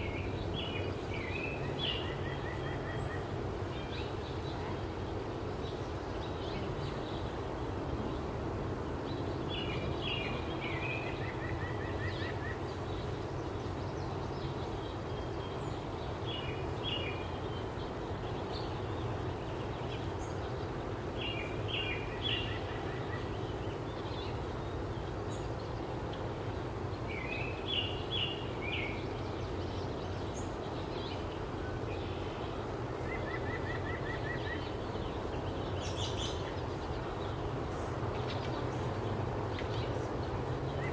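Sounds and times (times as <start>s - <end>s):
songbird singing with trill: 0.0s - 40.9s.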